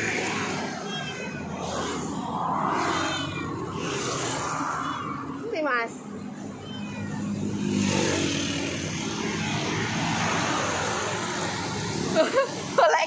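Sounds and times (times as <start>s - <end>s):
traffic noise: 0.0s - 13.0s
vehicle passing by: 1.5s - 12.8s
kitten mewing: 6.5s - 7.8s.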